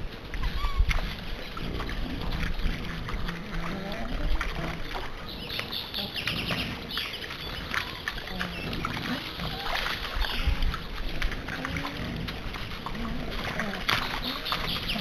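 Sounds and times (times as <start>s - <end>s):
water and mud splashing: 0.0s - 15.0s
boars grunting: 7.5s - 15.0s.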